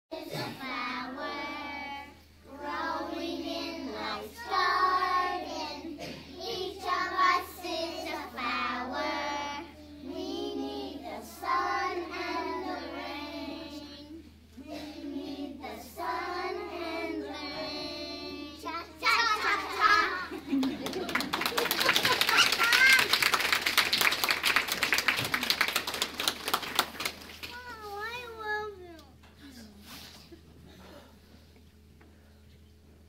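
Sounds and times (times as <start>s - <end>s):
children singing together: 0.2s - 20.5s.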